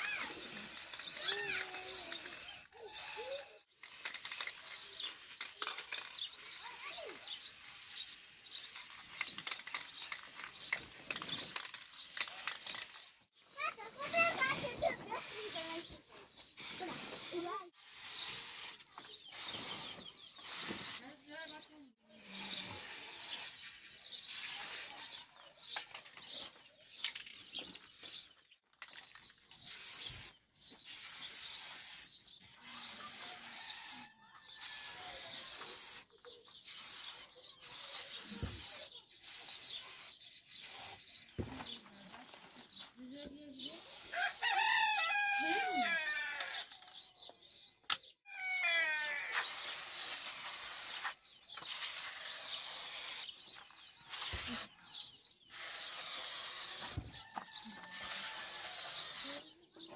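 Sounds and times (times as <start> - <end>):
spray-paint can hissing: 0.0 - 13.3, 14.0 - 16.0, 16.6 - 21.1, 22.2 - 25.2, 29.6 - 41.2, 43.6 - 45.7, 49.3 - 53.5, 54.1 - 57.1, 57.7 - 59.4
bird chirping: 0.0 - 59.9.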